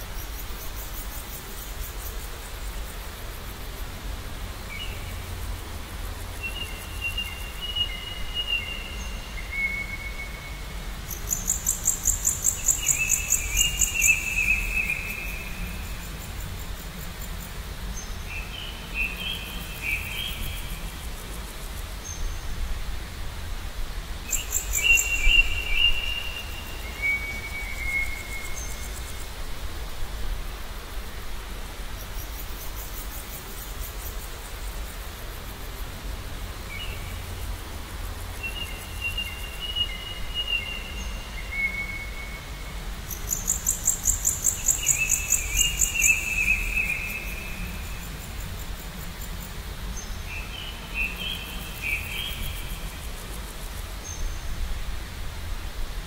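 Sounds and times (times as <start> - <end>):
steady background hiss: 0.0 - 56.0
songbirds whistling: 11.2 - 15.8, 24.3 - 29.0, 43.2 - 47.9.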